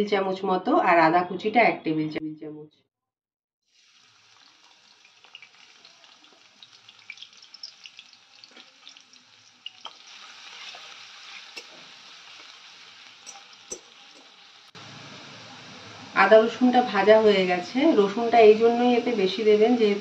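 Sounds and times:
garlic sizzling in hot oil: 0:03.7 - 0:20.0
spatula stirring in wok: 0:04.2 - 0:14.7.

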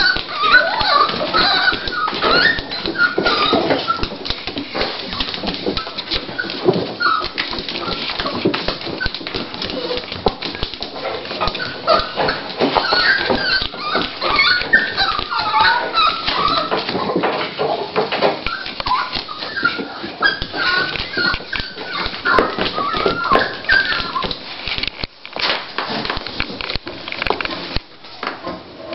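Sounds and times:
dog scratching at blanket: 0:00.0 - 0:17.2, 0:18.4 - 0:24.9
dog whimpering: 0:00.0 - 0:17.3, 0:18.2 - 0:24.4.

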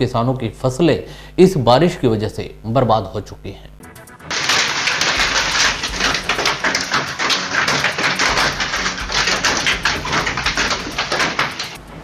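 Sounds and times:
hail and heavy rain on hard ground: 0:04.3 - 0:11.8.

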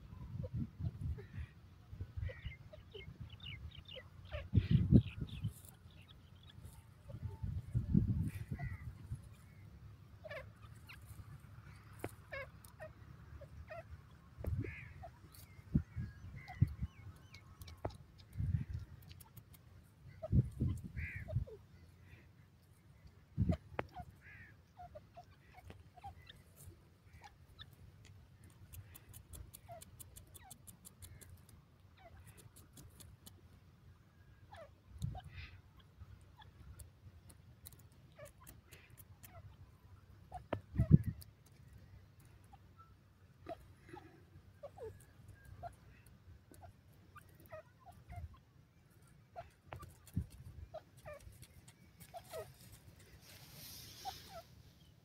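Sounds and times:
faint bird chirps: 0:00.0 - 0:32.8, 0:37.7 - 0:55.0
faint high ticks: 0:28.0 - 0:31.6.

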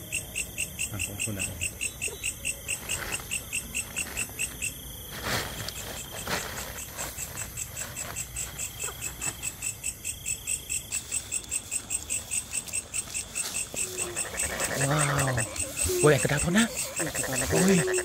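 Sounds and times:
crickets chirping: 0:00.0 - 0:18.0
plastic sack rustling: 0:02.8 - 0:08.6.

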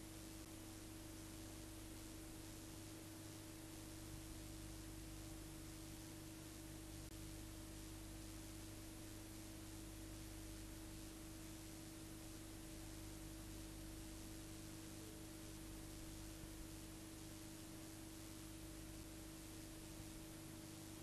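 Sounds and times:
faint electrical hum and hiss: 0:00.0 - 0:21.0.

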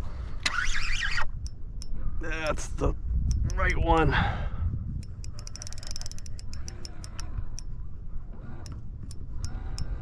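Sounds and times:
low wind rumble: 0:00.0 - 0:10.0
fishing reel clicking: 0:05.0 - 0:07.7.

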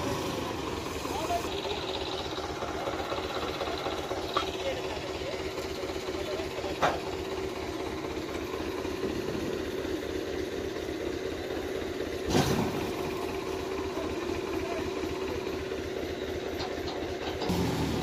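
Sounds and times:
tractor diesel engine running: 0:00.0 - 0:18.0
loud engine burst: 0:12.2 - 0:13.2, 0:17.4 - 0:18.0.

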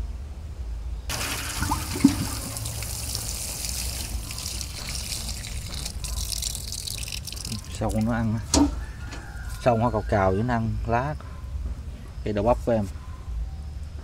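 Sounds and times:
water pattering on soil and leaves: 0:01.1 - 0:08.4, 0:09.4 - 0:09.7.

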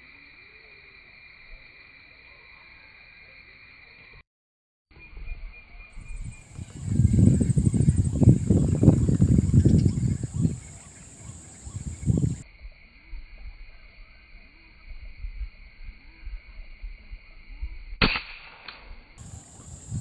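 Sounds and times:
air rifle shot: 0:18.0 - 0:19.0.

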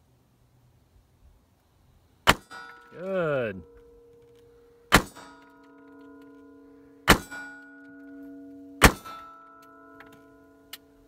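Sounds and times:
pistol shots: 0:02.2 - 0:02.9, 0:04.9 - 0:05.4, 0:07.0 - 0:07.7, 0:08.8 - 0:09.4
steel target ringing: 0:02.3 - 0:11.0.

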